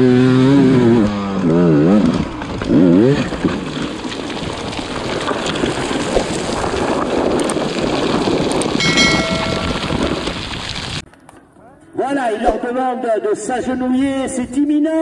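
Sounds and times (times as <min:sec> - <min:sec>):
bike sliding in loose gravel: 0:02.3 - 0:09.2, 0:09.9 - 0:11.0.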